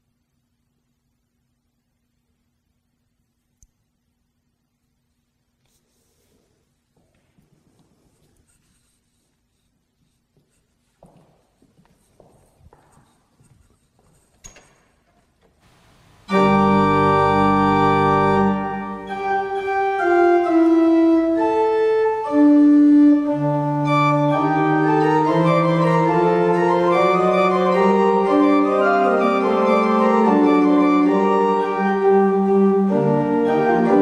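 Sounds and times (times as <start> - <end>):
church organ playing: 16.2 - 34.0.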